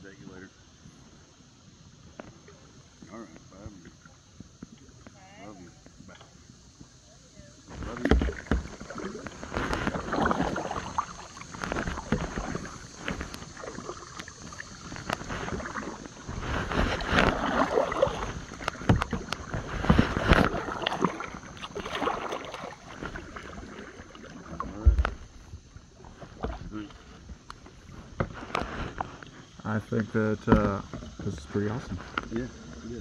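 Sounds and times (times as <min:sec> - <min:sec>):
paddle splashing in water: 0:07.6 - 0:32.9.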